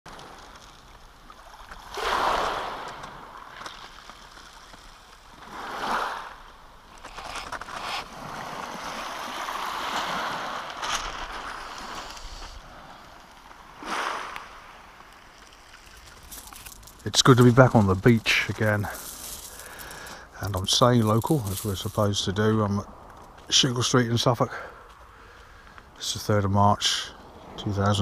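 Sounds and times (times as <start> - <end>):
waves washing on shingle beach: 0.1 - 25.0.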